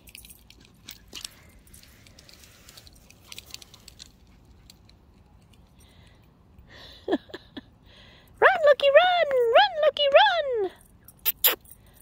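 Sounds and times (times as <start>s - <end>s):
dog tags jingling: 0.0s - 6.1s.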